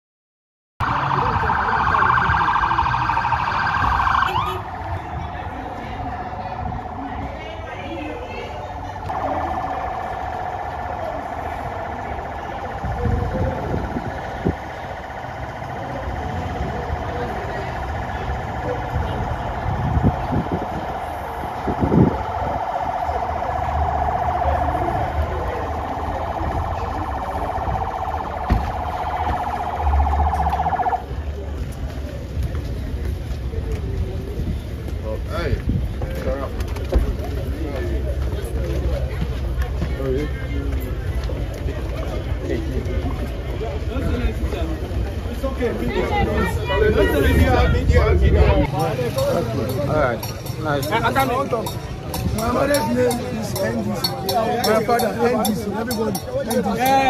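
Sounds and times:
police siren yelping: 0.8 - 31.2
low engine rumble: 0.8 - 57.0.

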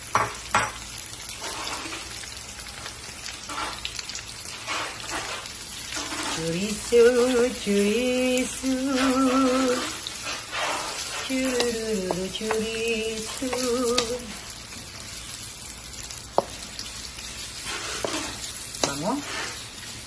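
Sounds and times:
sausage sizzling in oil: 0.0 - 20.0
wooden spatula scraping: 1.4 - 2.1, 3.4 - 14.5, 17.2 - 20.0
person singing: 6.4 - 10.0, 11.2 - 14.3.

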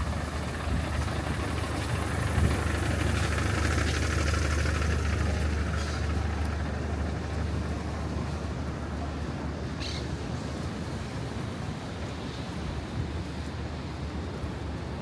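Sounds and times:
diesel engine idling: 0.0 - 11.5.

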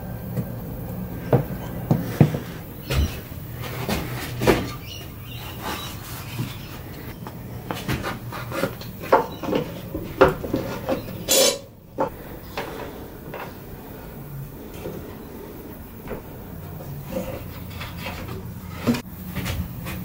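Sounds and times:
scraping rustle: 1.2 - 20.0
tools knocking and clattering on wood: 1.3 - 13.8.

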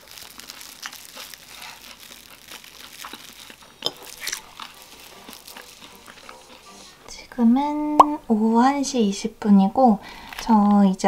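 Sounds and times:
plastic cling wrap crinkling: 0.0 - 7.1, 10.1 - 11.0.

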